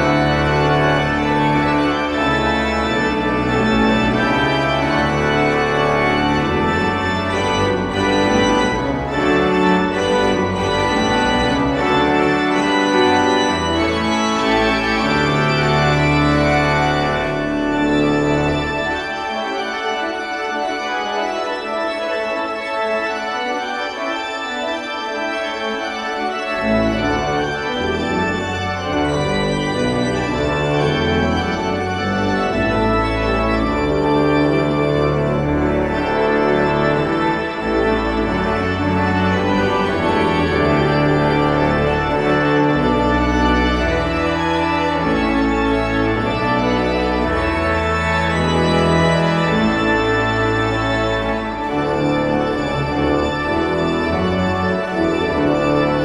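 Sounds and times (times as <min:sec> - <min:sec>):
pipe organ playing chords: 0:00.0 - 0:56.0.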